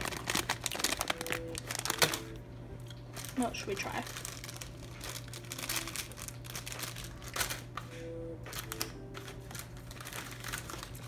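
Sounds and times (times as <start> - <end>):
plastic wrappers crinkling: 0.0 - 7.9, 8.5 - 11.0.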